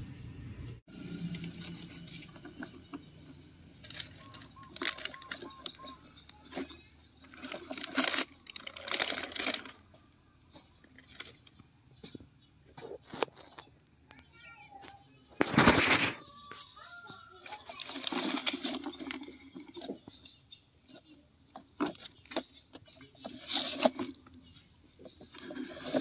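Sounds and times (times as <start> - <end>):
toy truck scraping over gravel: 1.1 - 3.1, 3.8 - 9.9, 17.4 - 21.1, 22.1 - 26.0.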